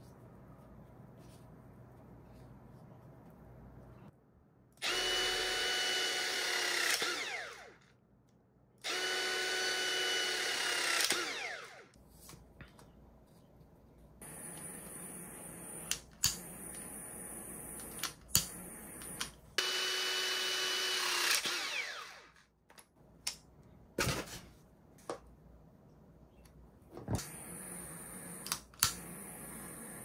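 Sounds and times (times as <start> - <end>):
power tool motor running: 4.8 - 7.8, 8.8 - 11.8, 14.2 - 22.3.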